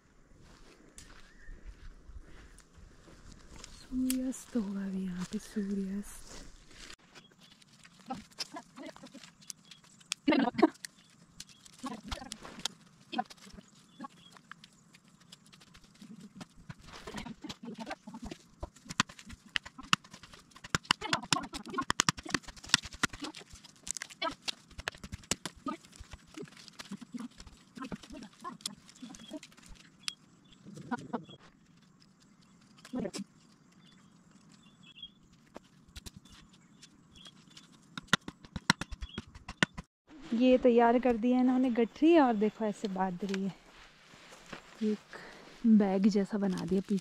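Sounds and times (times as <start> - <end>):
dry sticks snapping and knocking: 3.6 - 4.3, 7.4 - 30.2, 35.6 - 39.8.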